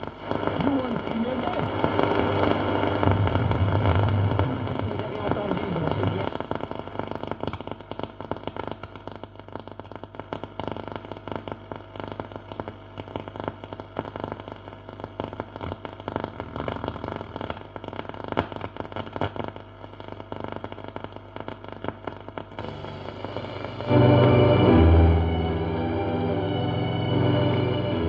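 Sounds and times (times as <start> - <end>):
radio static crackling: 0.0 - 28.0
radio station coming in: 0.4 - 6.7, 22.6 - 28.0
steady low hum: 1.6 - 6.8, 22.6 - 28.0.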